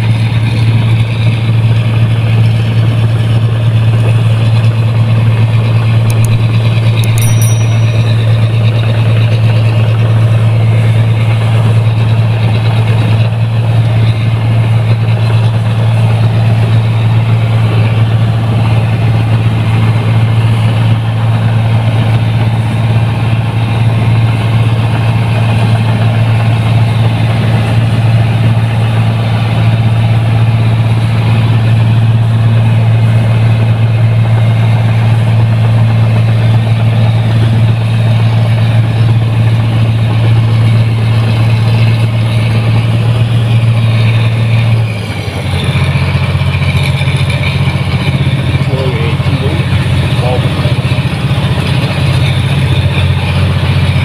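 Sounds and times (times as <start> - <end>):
combine harvester diesel engine drone: 0.0 - 54.0.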